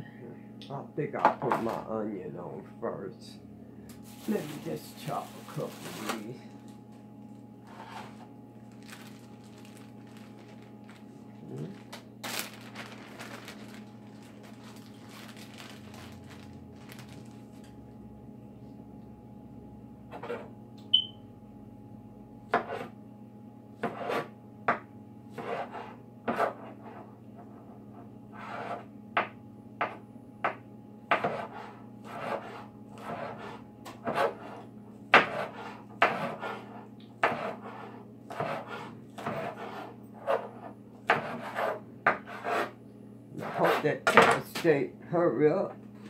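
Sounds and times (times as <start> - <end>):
knife slicing onion: 31.1 - 42.8.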